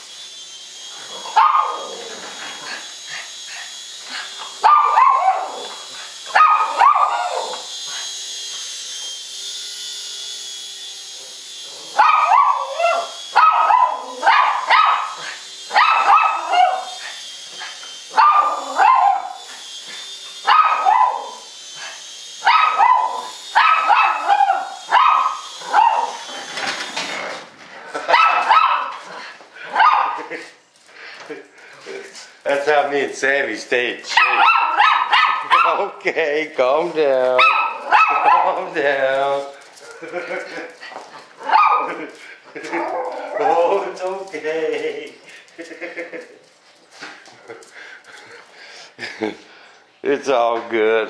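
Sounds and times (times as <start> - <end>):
toy helicopter motor whine: 0.0 - 49.8
small dog yapping: 1.2 - 2.2, 4.6 - 7.6, 11.9 - 17.0, 18.1 - 19.4, 20.4 - 21.4, 22.4 - 26.3, 28.0 - 29.1, 29.7 - 30.3, 34.1 - 35.8, 37.4 - 38.6, 41.4 - 42.0.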